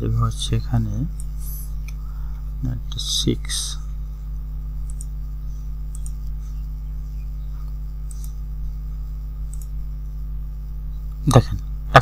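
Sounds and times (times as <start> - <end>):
low electrical hum: 0.0 - 12.0
computer mouse clicks: 4.8 - 5.2, 5.9 - 6.5, 7.6 - 8.4, 9.4 - 9.8.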